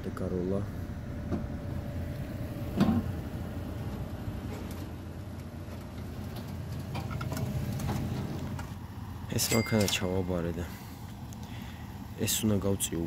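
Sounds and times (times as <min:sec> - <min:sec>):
car engine running at low speed: 0:00.0 - 0:09.4.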